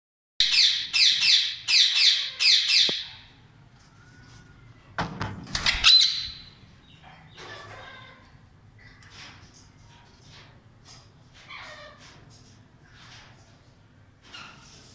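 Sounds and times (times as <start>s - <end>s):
parakeet squawks: 0.4s - 3.3s, 5.7s - 6.5s
parakeets calling harshly: 0.4s - 3.3s, 5.7s - 6.6s.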